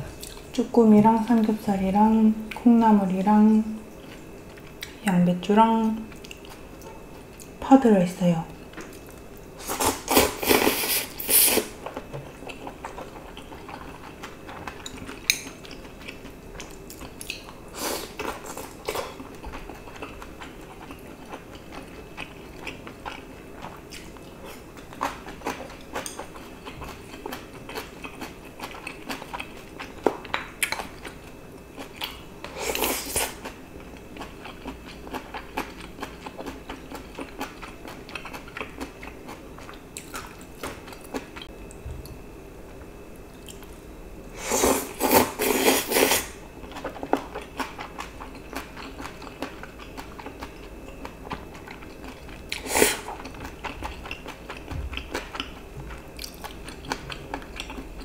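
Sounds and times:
chewing: 0:11.8 - 0:41.8, 0:45.0 - 0:58.0
slurping noodles: 0:44.4 - 0:46.3.

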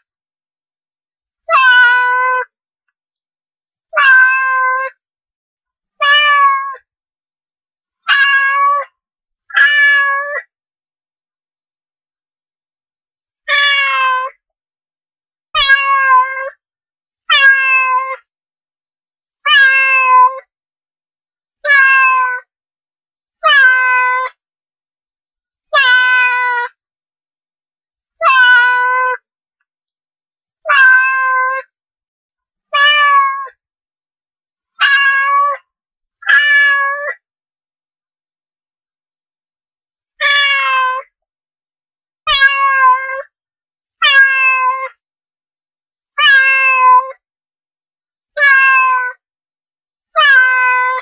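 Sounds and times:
cat meowing: 0:01.5 - 0:02.5, 0:04.0 - 0:05.0, 0:06.0 - 0:06.8, 0:08.1 - 0:08.9, 0:09.5 - 0:10.5, 0:13.5 - 0:14.3, 0:15.6 - 0:16.6, 0:17.3 - 0:18.2, 0:19.5 - 0:20.5, 0:21.6 - 0:22.5, 0:23.4 - 0:24.4, 0:25.7 - 0:26.7, 0:28.2 - 0:29.2, 0:30.6 - 0:31.7, 0:32.7 - 0:33.6, 0:34.8 - 0:35.6, 0:36.2 - 0:37.2, 0:40.2 - 0:41.1, 0:42.3 - 0:43.3, 0:44.0 - 0:45.0, 0:46.2 - 0:47.2, 0:48.4 - 0:49.2, 0:50.2 - 0:51.0.

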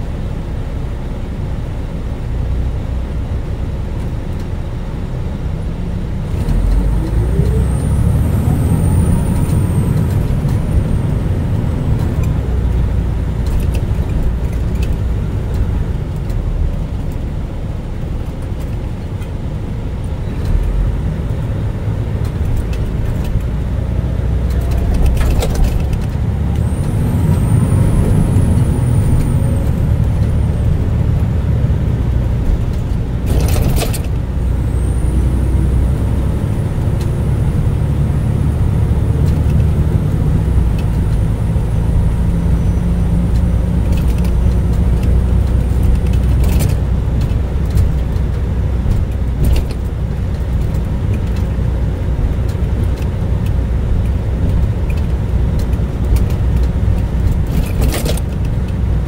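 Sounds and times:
car engine and road rumble: 0:00.0 - 0:59.0.

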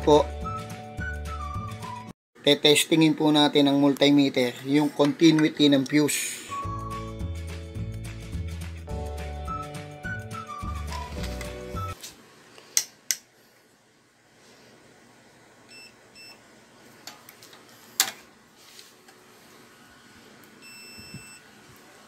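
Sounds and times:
multimeter beeping: 0:20.6 - 0:21.4.

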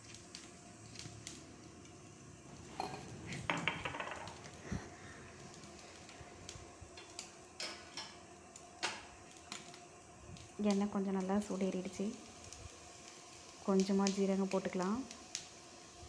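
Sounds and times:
kitchen utensils clinking: 0:02.7 - 0:04.4.

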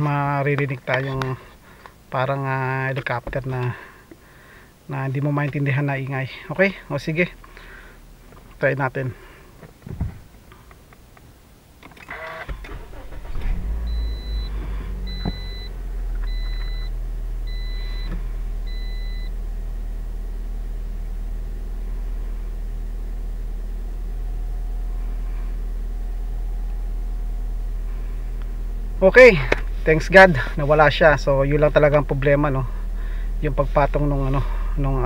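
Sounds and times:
car starter cranking: 0:11.9 - 0:19.0
car engine revving and idling: 0:12.5 - 0:35.0
short beeps: 0:13.9 - 0:14.5, 0:15.1 - 0:15.7, 0:16.3 - 0:16.9, 0:17.5 - 0:18.1, 0:18.7 - 0:19.3.

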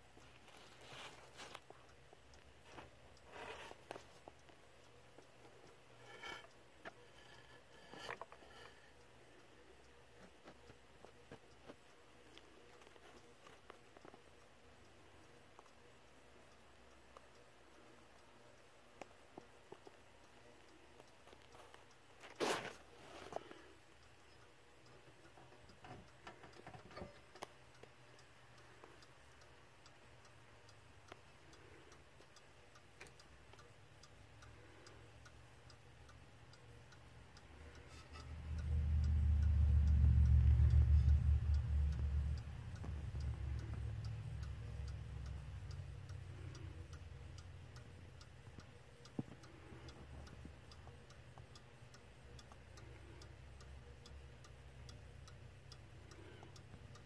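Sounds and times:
clock ticking: 0:00.0 - 0:57.0
low rumble: 0:38.3 - 0:46.0.

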